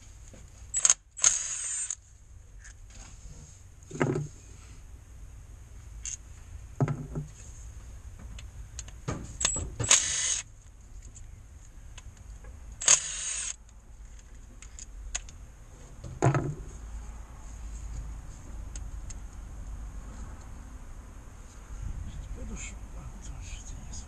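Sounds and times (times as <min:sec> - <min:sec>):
impact wrench spinning: 0:00.7 - 0:02.0, 0:09.4 - 0:10.5, 0:12.8 - 0:13.6.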